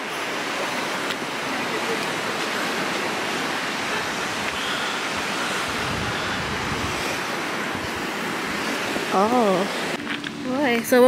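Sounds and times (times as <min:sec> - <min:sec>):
river rushing: 0:00.0 - 0:11.0
wind buffeting microphone: 0:00.0 - 0:11.0.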